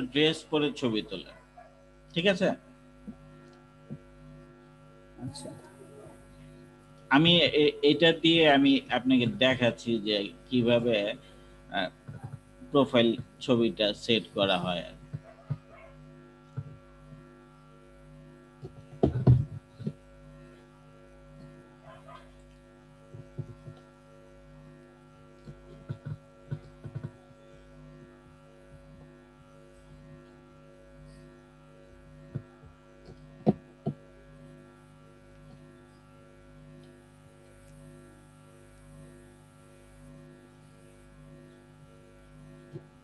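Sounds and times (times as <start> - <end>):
electrical hum: 0.0 - 43.0.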